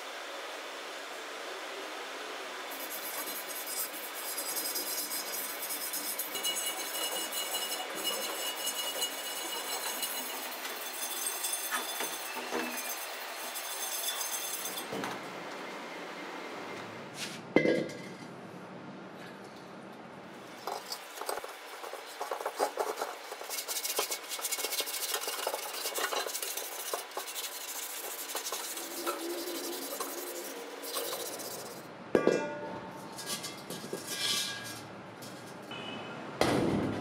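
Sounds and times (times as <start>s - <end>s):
hand scrubbing metal: 20.6s - 31.8s.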